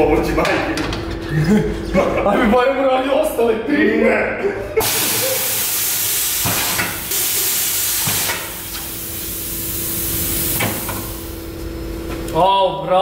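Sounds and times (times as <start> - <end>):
steady hum: 4.3 - 12.9
compressed air hissing: 4.8 - 11.5.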